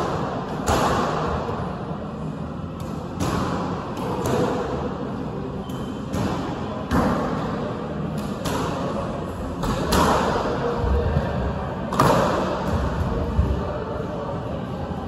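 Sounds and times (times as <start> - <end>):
squash racket striking ball: 0.0 - 1.5, 2.8 - 4.9, 5.7 - 9.0, 9.6 - 10.5, 11.9 - 13.1.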